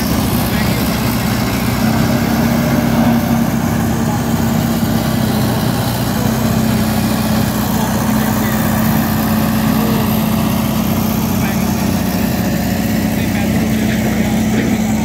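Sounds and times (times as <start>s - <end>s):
road roller diesel engine running: 0.0s - 15.0s.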